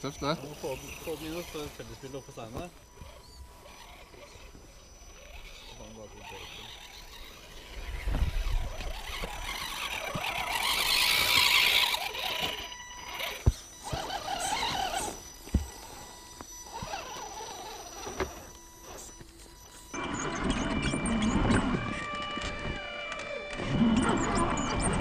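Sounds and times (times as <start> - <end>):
electric motor and gear whine: 0.0 - 25.0
tyres scrabbling on rock: 2.4 - 19.4
toy cars knocking against stone: 9.1 - 15.9.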